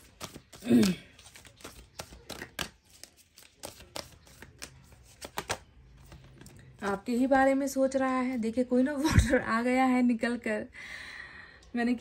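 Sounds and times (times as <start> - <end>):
cards being shuffled: 0.0 - 6.8.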